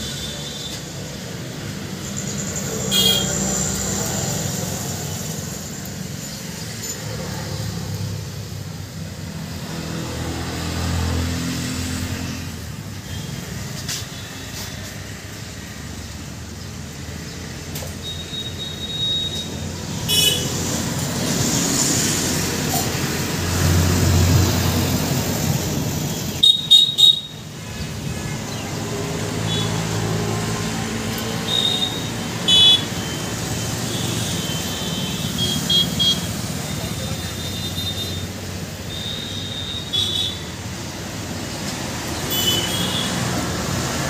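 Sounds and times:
highway traffic rumble: 0:00.0 - 0:44.0
car horn honks: 0:02.9 - 0:03.4, 0:20.1 - 0:20.5, 0:31.5 - 0:33.2, 0:38.9 - 0:40.5, 0:42.3 - 0:43.2.

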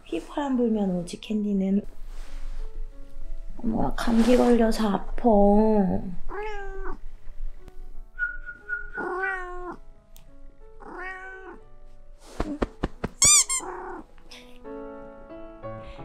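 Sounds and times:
soft background music: 0:00.0 - 0:16.0
cats meowing: 0:06.3 - 0:07.0, 0:09.0 - 0:09.8, 0:10.8 - 0:11.6, 0:13.2 - 0:14.1.

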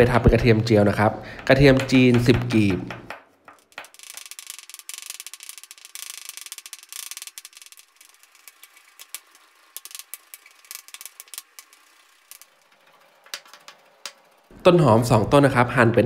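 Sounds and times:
knife chopping on wooden board: 0:01.4 - 0:03.9.

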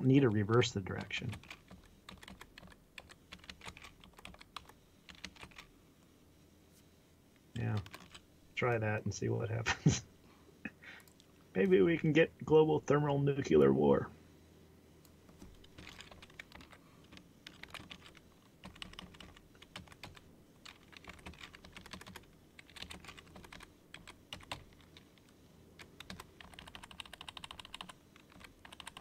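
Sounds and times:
typing on computer keyboard: 0:00.5 - 0:05.7, 0:07.7 - 0:08.2, 0:15.4 - 0:29.0.

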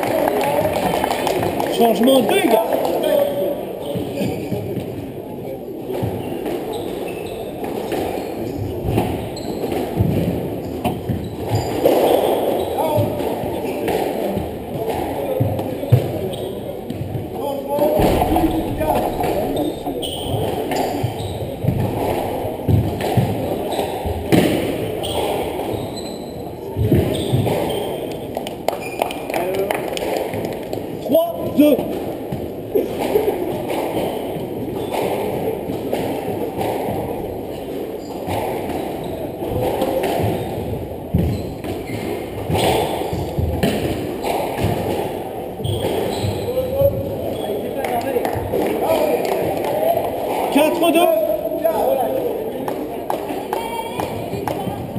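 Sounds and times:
hall background noise: 0:00.0 - 0:25.7
squash ball knocks with echo: 0:07.6 - 0:25.8, 0:26.8 - 0:27.7, 0:30.0 - 0:46.1
squash ball knocks: 0:16.9 - 0:23.5.

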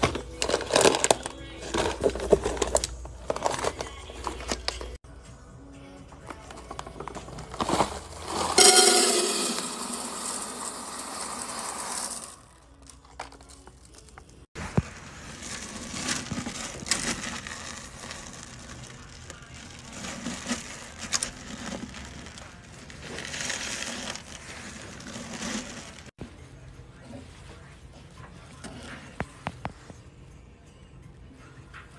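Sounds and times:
wax beads crunching and rattling: 0:07.4 - 0:26.2.

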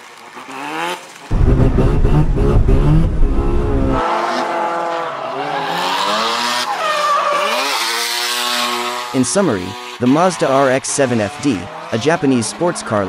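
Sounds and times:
car engine revving: 0:01.3 - 0:04.3.

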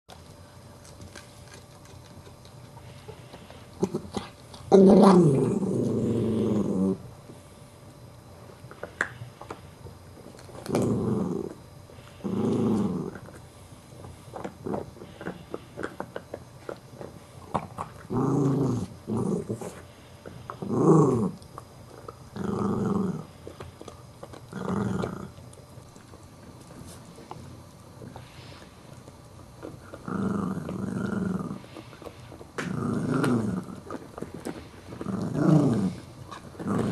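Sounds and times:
small dog growling: 0:01.4 - 0:07.1, 0:10.4 - 0:13.5, 0:14.3 - 0:28.8, 0:29.6 - 0:36.9.

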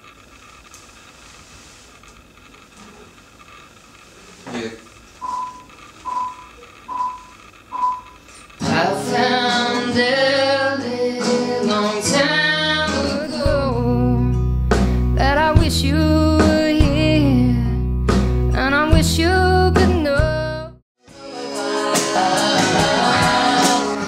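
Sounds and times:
woman singing: 0:08.6 - 0:14.4, 0:15.2 - 0:17.8, 0:18.5 - 0:24.0
strummed acoustic guitar: 0:08.6 - 0:17.0, 0:21.1 - 0:24.0
deep bass: 0:13.5 - 0:20.8.

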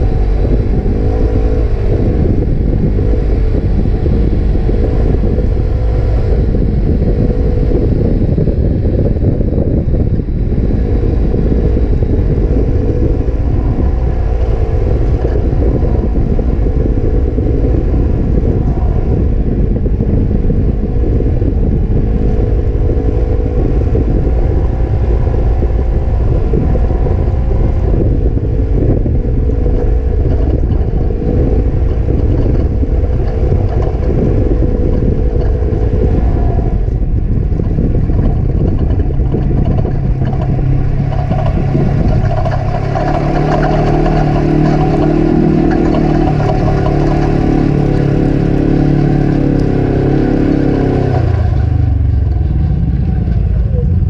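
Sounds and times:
utility vehicle engine running: 0:00.0 - 0:54.0
wind rumble on microphone: 0:00.0 - 0:54.0.

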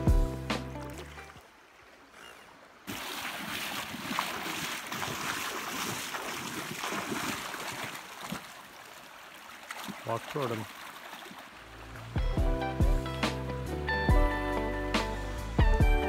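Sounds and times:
river current rushing and splashing: 0:00.0 - 0:12.5.

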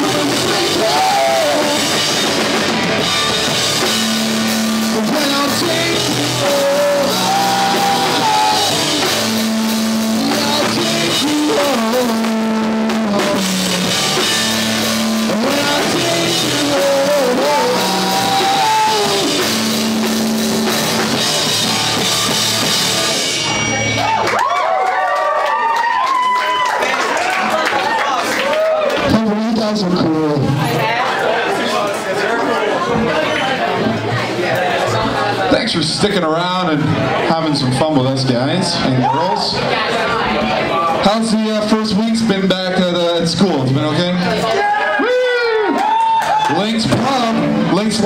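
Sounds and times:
person singing: 0:00.0 - 0:02.2, 0:04.9 - 0:14.2, 0:15.1 - 0:19.8
rock band playing: 0:00.0 - 0:24.9, 0:33.0 - 0:48.0.

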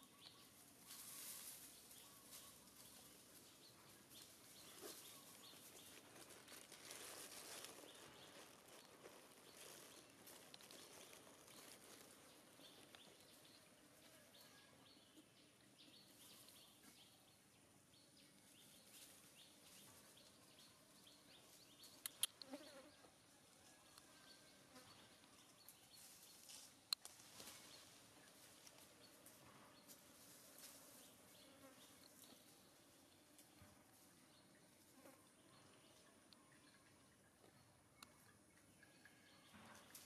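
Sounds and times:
sharp clicks: 0:22.0 - 0:22.5.

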